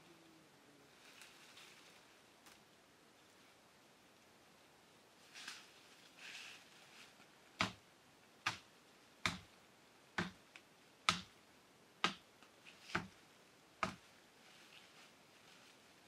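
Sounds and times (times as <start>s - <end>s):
leaves rustling: 0.0s - 11.5s, 12.4s - 16.0s
blade chopping tree branch: 7.6s - 7.8s, 8.5s - 9.5s.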